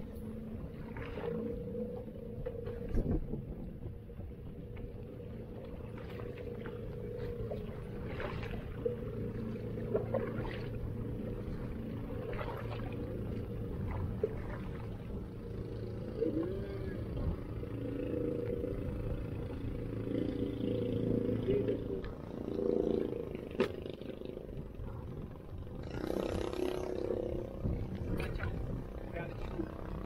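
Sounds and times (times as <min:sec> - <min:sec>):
steady low rumble: 0:00.0 - 0:30.0
paddle splashes: 0:00.7 - 0:01.6, 0:05.6 - 0:15.2.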